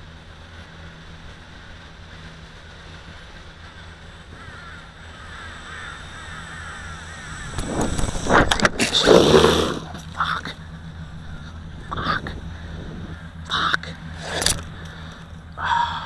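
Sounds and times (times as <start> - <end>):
low steady hum: 0.0 - 16.0
birds cawing: 3.6 - 8.2, 8.8 - 16.0.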